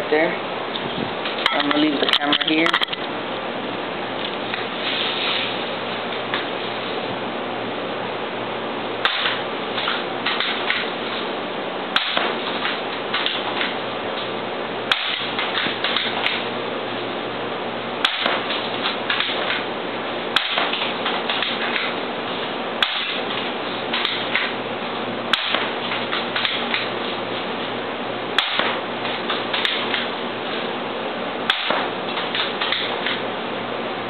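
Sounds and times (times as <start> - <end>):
steady background hiss: 0.0 - 34.0
airsoft rifle shots: 9.0 - 10.9, 11.9 - 13.8, 14.9 - 16.4, 18.0 - 19.6, 20.3 - 22.0, 22.8 - 24.5, 25.3 - 26.9, 28.4 - 30.1, 31.5 - 33.2.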